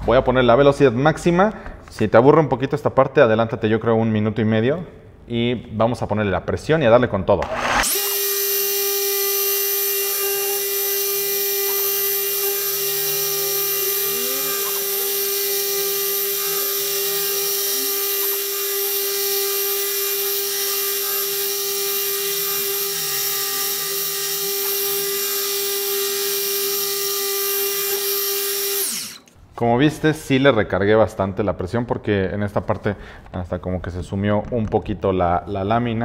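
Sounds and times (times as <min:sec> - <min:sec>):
car polisher motor whine: 0:07.4 - 0:29.3.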